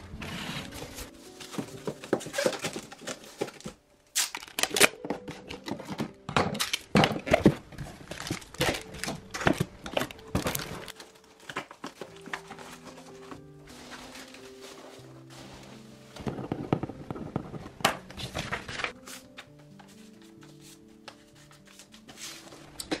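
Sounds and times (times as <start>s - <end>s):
cardboard box being folded: 0.2s - 3.8s, 10.3s - 16.2s.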